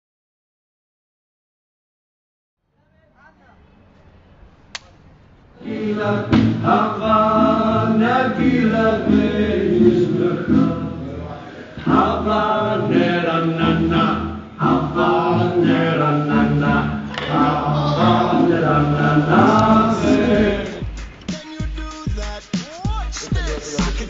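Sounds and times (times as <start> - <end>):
band music with singing: 5.6 - 24.0.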